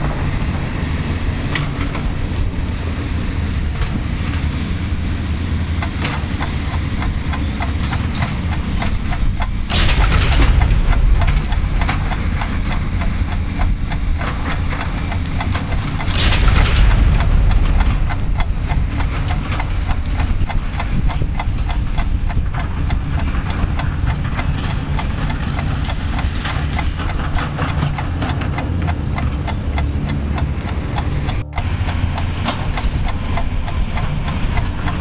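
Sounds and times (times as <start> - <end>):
sharp bang: 5.8 - 15.1, 15.8 - 20.6
excavator tracks clanking: 5.8 - 32.6.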